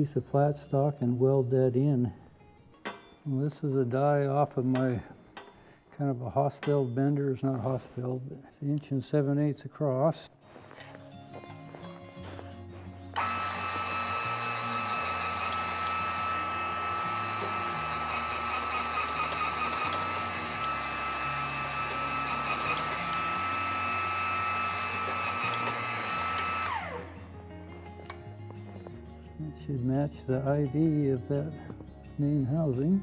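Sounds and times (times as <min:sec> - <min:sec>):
electric motor whining: 0:13.1 - 0:27.3.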